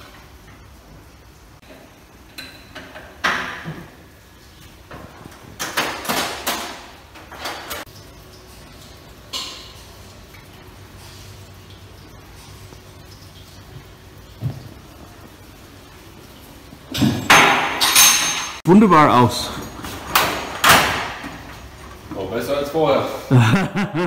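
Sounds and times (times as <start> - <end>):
metal tools clanking: 16.9 - 18.6.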